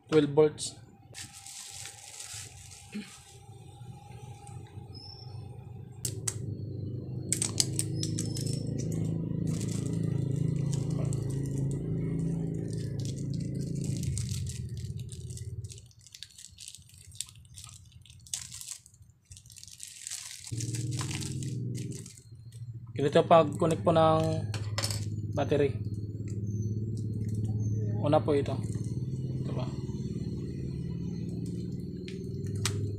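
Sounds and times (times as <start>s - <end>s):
low hum: 0.7s - 32.9s
plastic wrapping crinkling: 1.2s - 3.5s, 7.3s - 22.6s.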